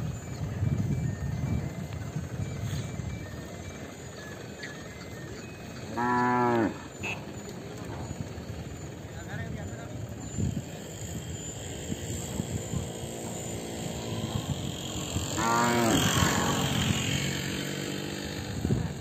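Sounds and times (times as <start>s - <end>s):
cow mooing: 5.9s - 7.2s, 15.3s - 17.0s.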